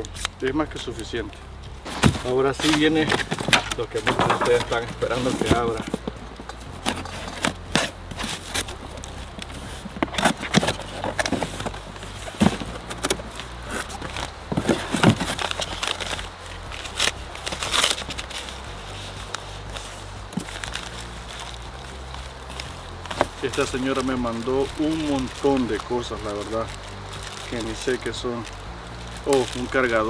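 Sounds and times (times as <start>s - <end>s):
paper and cardboard rustling: 0.0s - 30.0s
knocks and scrapes: 1.8s - 21.8s.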